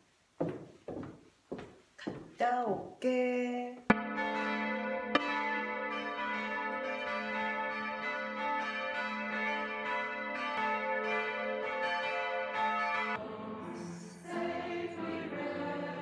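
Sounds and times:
church bells ringing a peal: 0:03.9 - 0:16.0.

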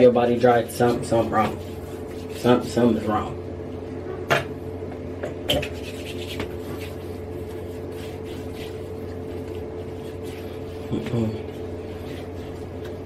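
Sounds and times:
low room hum: 0:00.0 - 0:13.0
hands rubbing lotion: 0:05.7 - 0:13.0.

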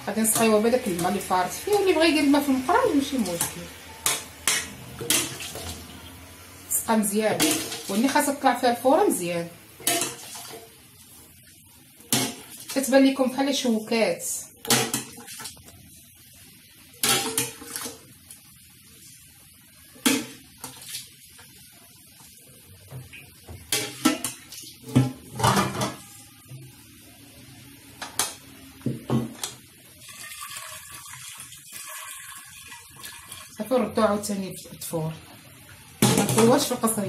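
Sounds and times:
metal pots clanking: 0:03.1 - 0:06.2, 0:07.3 - 0:08.2, 0:09.8 - 0:10.7, 0:17.0 - 0:18.0, 0:23.6 - 0:26.1, 0:36.0 - 0:36.8.

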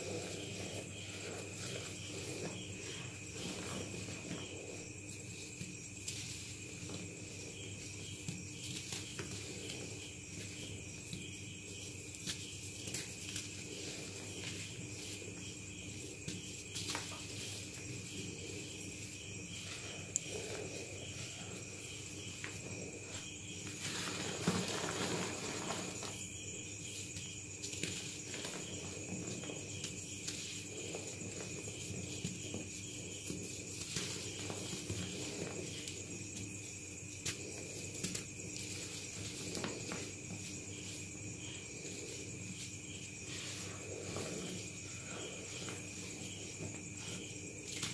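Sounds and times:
chalk crunching by hand: 0:00.0 - 0:06.5
chalk crunching and crackling in hands: 0:00.0 - 0:47.9.

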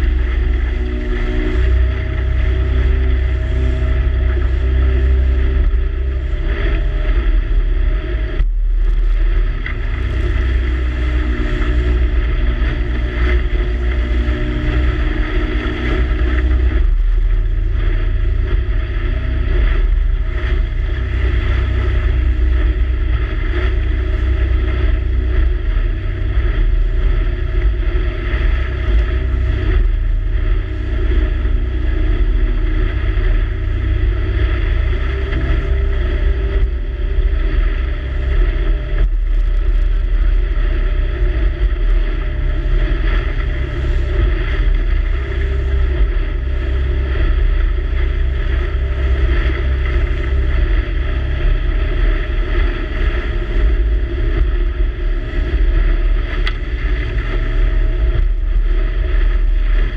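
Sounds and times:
motorboat engine running: 0:00.0 - 0:59.9.

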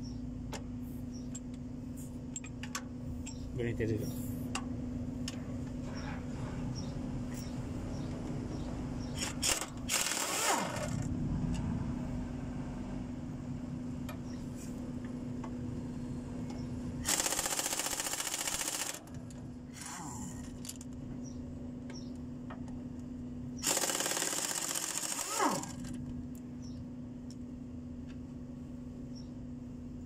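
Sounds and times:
steady low hum: 0:00.0 - 0:30.0
air impact wrench hammering: 0:09.2 - 0:11.0, 0:17.1 - 0:19.1, 0:23.6 - 0:25.9.

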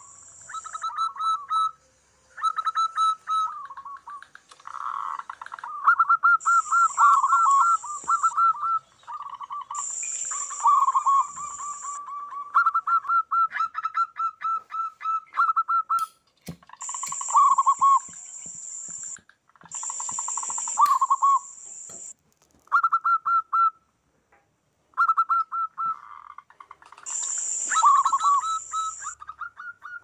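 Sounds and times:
high steady hiss: 0:00.0 - 0:04.5, 0:06.2 - 0:12.0, 0:16.1 - 0:22.4, 0:27.1 - 0:29.2
doves cooing: 0:02.4 - 0:15.8, 0:25.1 - 0:30.0.

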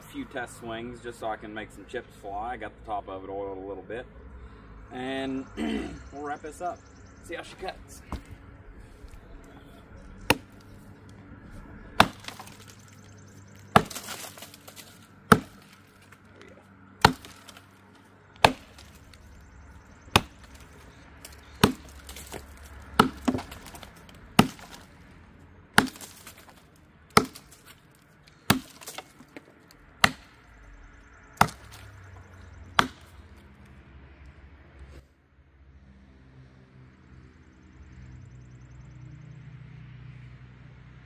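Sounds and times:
axe chopping into log: 0:08.0 - 0:08.4, 0:10.3 - 0:10.8, 0:12.0 - 0:13.0, 0:13.6 - 0:16.1, 0:17.0 - 0:17.7, 0:18.4 - 0:19.2, 0:20.1 - 0:24.9, 0:25.8 - 0:27.8, 0:28.4 - 0:29.4, 0:30.0 - 0:30.4, 0:31.4 - 0:31.9, 0:32.7 - 0:33.2.

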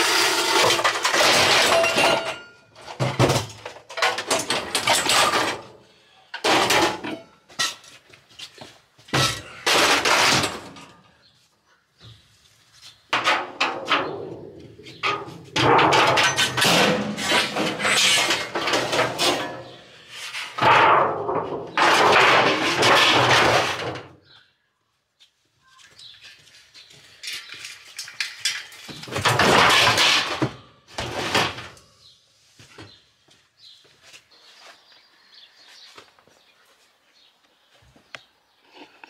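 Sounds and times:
scrap metal clattering and scraping: 0:00.0 - 0:08.1, 0:09.1 - 0:11.0, 0:12.9 - 0:24.1, 0:27.0 - 0:32.0.

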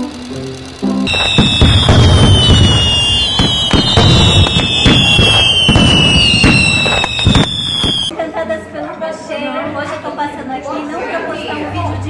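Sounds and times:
firework bangs and crackles: 0:01.1 - 0:08.1
firework whistles sliding down: 0:01.1 - 0:08.1.

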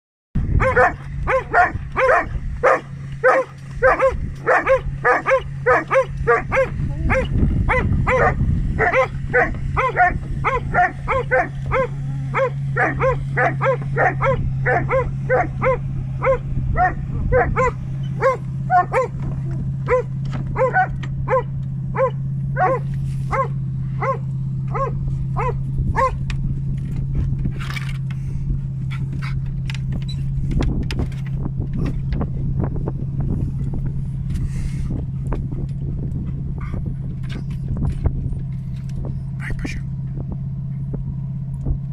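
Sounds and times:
steady low hum: 0:00.4 - 0:41.9
wind noise: 0:00.4 - 0:41.9
dogs barking: 0:00.5 - 0:26.3, 0:36.6 - 0:37.6.

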